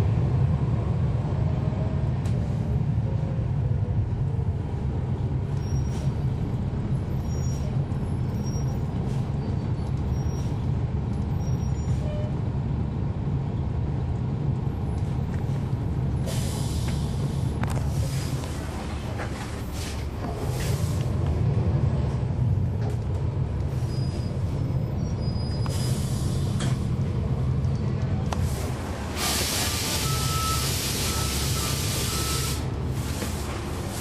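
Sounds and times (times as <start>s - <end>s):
bus diesel engine rumble: 0.0s - 34.0s
compressed air hiss: 28.4s - 34.0s.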